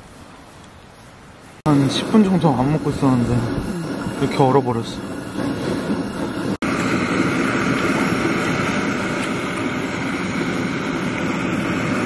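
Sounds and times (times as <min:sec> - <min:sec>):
gas burner hissing and roaring: 0:00.0 - 0:12.0.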